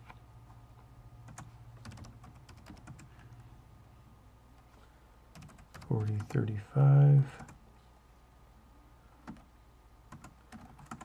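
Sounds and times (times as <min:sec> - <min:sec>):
low steady hum: 0:00.0 - 0:11.0
computer keyboard keystrokes: 0:01.3 - 0:03.2, 0:05.3 - 0:06.4, 0:09.2 - 0:09.5, 0:10.1 - 0:11.0.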